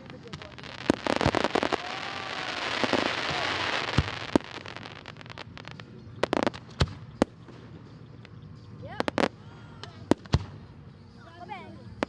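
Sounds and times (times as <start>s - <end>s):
firework shells banging: 0.0s - 10.8s
fireworks crackling: 0.0s - 12.0s.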